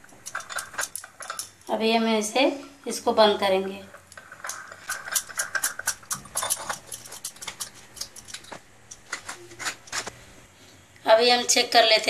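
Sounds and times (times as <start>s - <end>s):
metal lid clicking and scraping: 4.0s - 10.0s.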